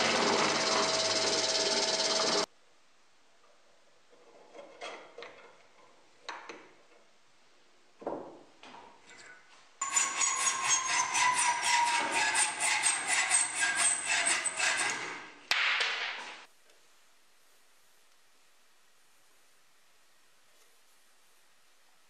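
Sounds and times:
hacksaw cutting steel rod: 0:09.8 - 0:15.3.

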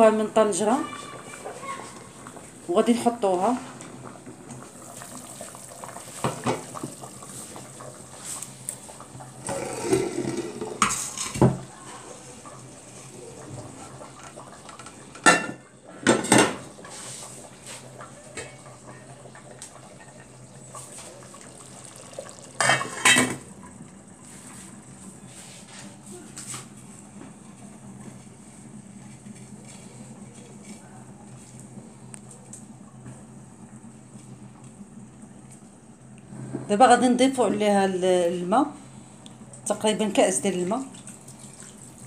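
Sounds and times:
metal pot clanking: 0:21.9 - 0:23.5.

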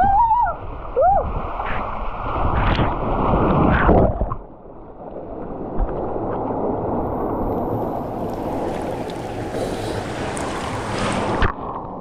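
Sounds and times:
pool water sloshing: 0:04.4 - 0:11.8
water rushing down a slide: 0:05.2 - 0:12.0
rider plunging into pool: 0:05.8 - 0:11.6.

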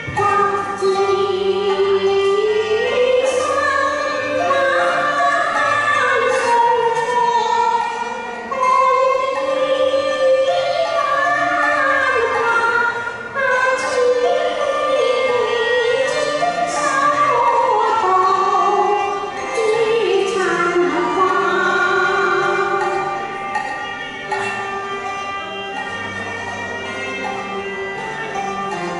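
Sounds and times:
musical accompaniment: 0:00.0 - 0:28.9
woman singing opera: 0:00.1 - 0:07.9, 0:08.5 - 0:23.0.

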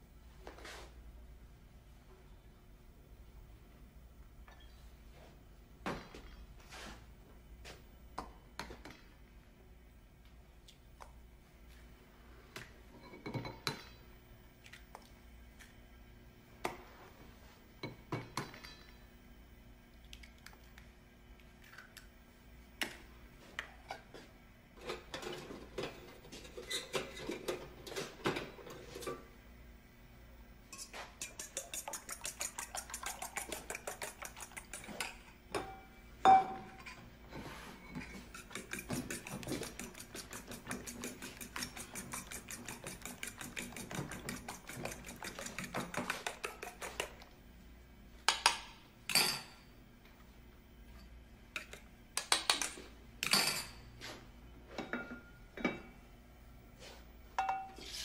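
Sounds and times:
fork beating eggs in metal bowl: 0:30.7 - 0:35.4, 0:37.9 - 0:47.3.

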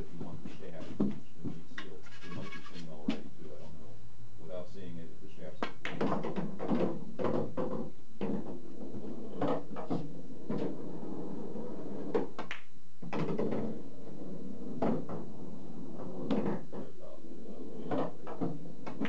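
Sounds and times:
pool balls clacking: 0:05.6 - 0:17.0, 0:17.6 - 0:19.0.

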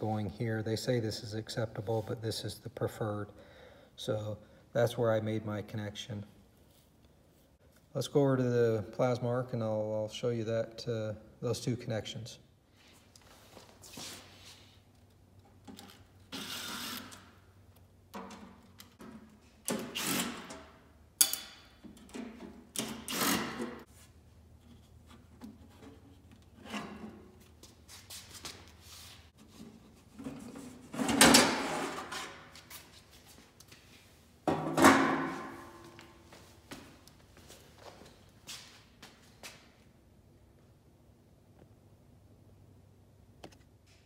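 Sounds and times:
cordless drill running: 0:16.4 - 0:17.2.

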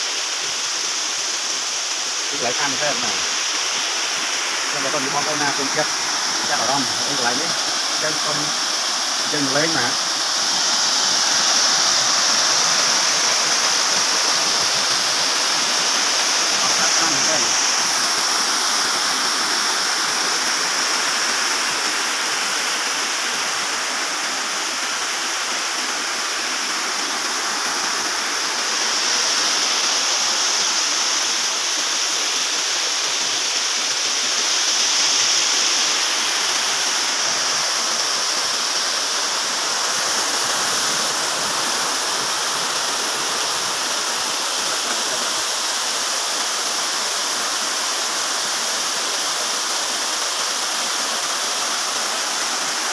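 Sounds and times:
waterfall rushing: 0:00.0 - 0:52.9.

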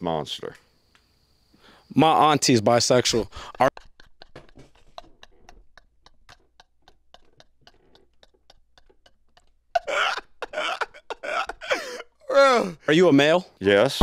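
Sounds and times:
man wheezing laughter: 0:03.1 - 0:12.8.

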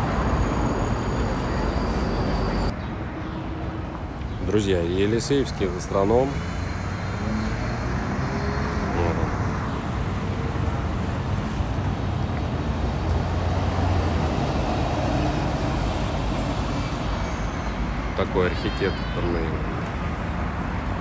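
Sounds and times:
bus engine hum: 0:00.0 - 0:02.7, 0:05.8 - 0:18.3
cars and buses passing: 0:00.0 - 0:21.0.

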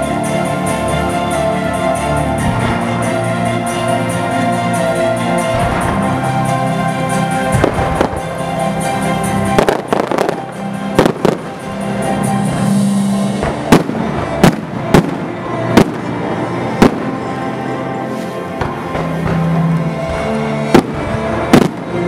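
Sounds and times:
music: 0:00.0 - 0:22.0
fireworks bursting: 0:02.2 - 0:22.0
fireworks crackle: 0:05.5 - 0:22.0
sharp fireworks booms: 0:07.5 - 0:08.3, 0:13.4 - 0:16.2, 0:16.8 - 0:17.3, 0:20.1 - 0:22.0.

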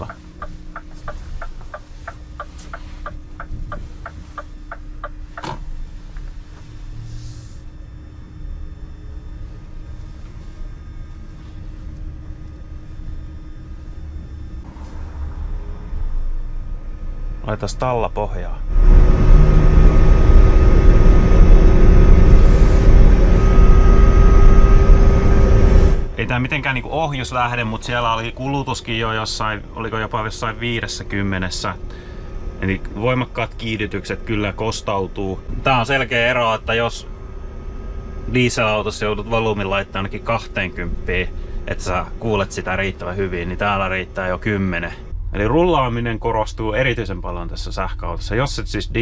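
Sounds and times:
turn signal ticking: 0:00.0 - 0:05.6
electric drive whine: 0:00.0 - 0:49.0
low hum and road rumble: 0:00.0 - 0:49.0.

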